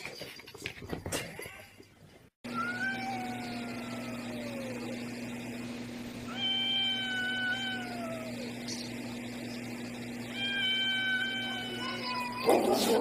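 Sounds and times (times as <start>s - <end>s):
cat yowling: 2.4s - 5.1s, 6.3s - 8.6s, 10.3s - 13.0s.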